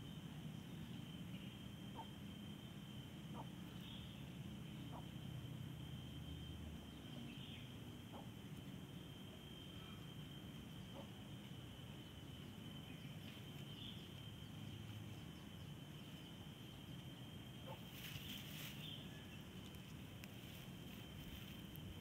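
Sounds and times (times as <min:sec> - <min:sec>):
insects trilling: 0:00.0 - 0:22.0
low outdoor rumble: 0:00.0 - 0:22.0
grass rustling: 0:12.5 - 0:22.0.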